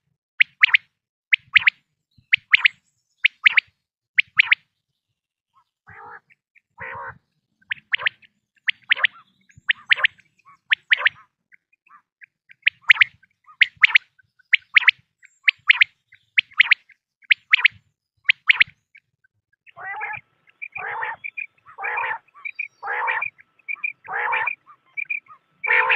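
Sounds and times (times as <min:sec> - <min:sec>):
quail two-note calls: 0:05.9 - 0:18.7, 0:19.7 - 0:25.9.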